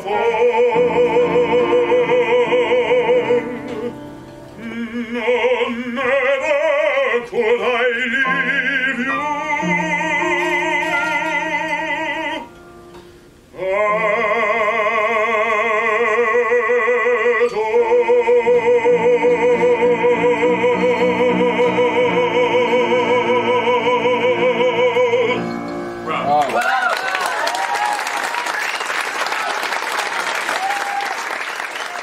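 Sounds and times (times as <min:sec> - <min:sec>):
operatic baritone singing: 0:00.0 - 0:12.5, 0:13.5 - 0:26.3
grand piano: 0:00.0 - 0:32.0.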